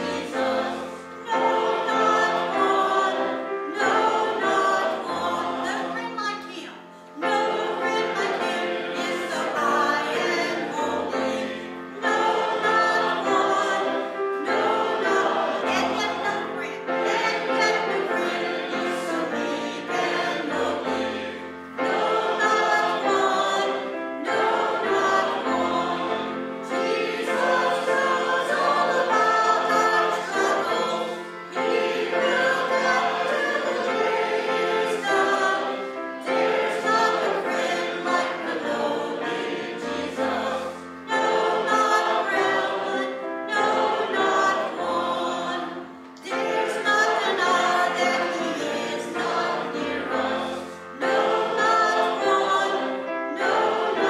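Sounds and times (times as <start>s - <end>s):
voices singing a hymn: 0.0s - 54.0s.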